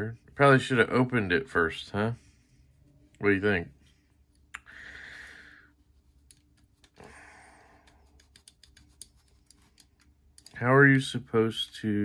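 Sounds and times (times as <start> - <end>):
light clicks of knife parts: 7.8 - 10.6.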